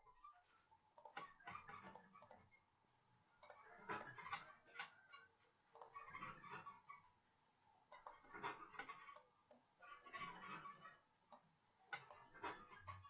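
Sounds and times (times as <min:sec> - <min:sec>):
faint computer mouse clicks: 0:01.0 - 0:01.2, 0:01.8 - 0:02.4, 0:03.4 - 0:04.4, 0:05.7 - 0:06.0, 0:07.9 - 0:08.2, 0:11.3 - 0:12.2.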